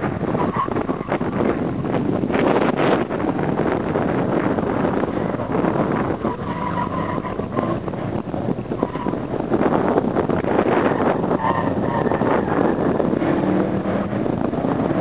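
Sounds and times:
car engine running hard: 0:00.0 - 0:15.0
tyres squealing: 0:05.1 - 0:07.9.

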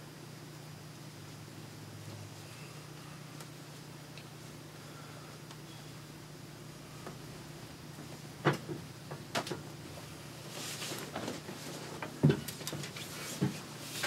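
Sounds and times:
low room hum: 0:00.0 - 0:14.0.

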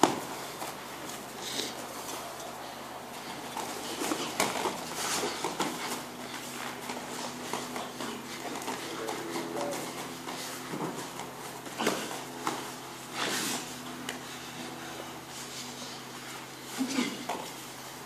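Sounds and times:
bare feet slapping on mats: 0:00.0 - 0:17.9.

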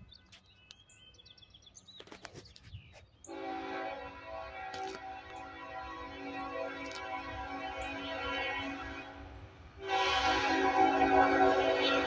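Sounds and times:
birds chirping: 0:00.0 - 0:03.5, 0:04.8 - 0:09.4
locomotive air horn: 0:03.3 - 0:12.0.

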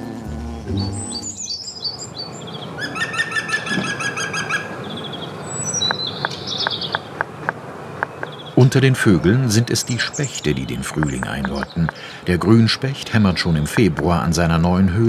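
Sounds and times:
songbirds chirping and trilling: 0:00.6 - 0:15.0
woodpecker tapping on wood: 0:05.8 - 0:08.7, 0:10.6 - 0:12.2, 0:13.3 - 0:14.3.

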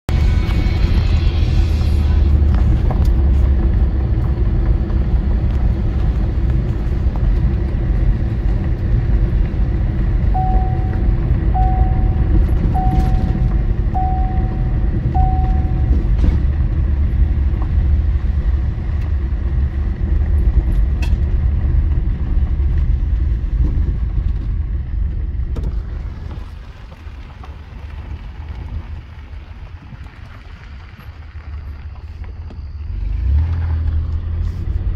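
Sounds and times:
car tyre and engine rumble: 0:00.1 - 0:34.9
short electronic beeps: 0:10.4 - 0:16.1.

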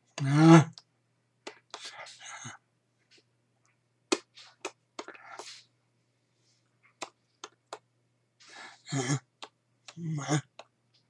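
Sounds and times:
faint steady hum: 0:00.0 - 0:11.0
lip smacks and mouth clicks: 0:00.2 - 0:02.1, 0:04.1 - 0:05.6, 0:06.9 - 0:07.9, 0:09.4 - 0:10.7
man whispering: 0:01.5 - 0:02.6, 0:09.9 - 0:10.6.

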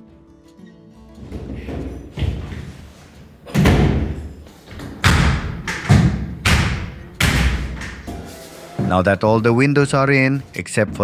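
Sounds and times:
heavy thumps with echo: 0:01.2 - 0:08.2.

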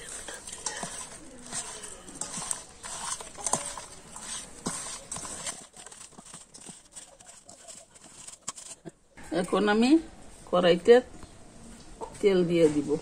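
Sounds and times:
hand mixing fish in bowl: 0:00.0 - 0:09.1.

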